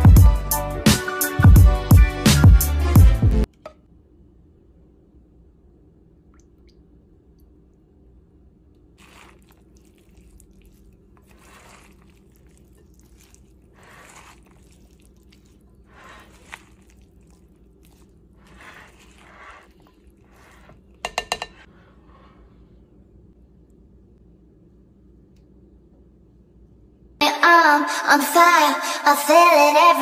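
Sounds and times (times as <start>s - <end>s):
spatula squishing salad: 9.0s - 21.7s.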